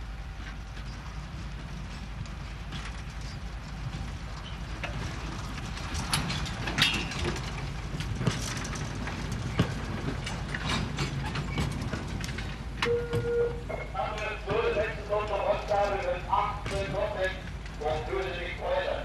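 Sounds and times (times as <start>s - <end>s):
freight wagons clanking and creaking: 0.1s - 19.0s
brief metal squeal: 12.8s - 14.0s.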